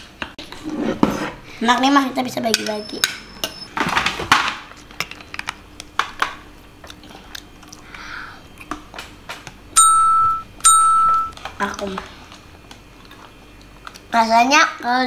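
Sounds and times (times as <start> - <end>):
electronic beeps: 9.8 - 11.4.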